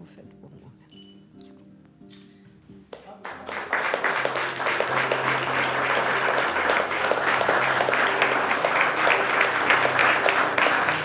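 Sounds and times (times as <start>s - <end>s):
people applauding: 3.0s - 11.0s.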